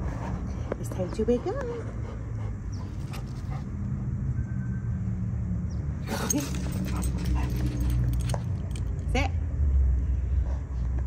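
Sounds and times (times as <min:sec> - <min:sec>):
dog whining: 0:06.0 - 0:08.5.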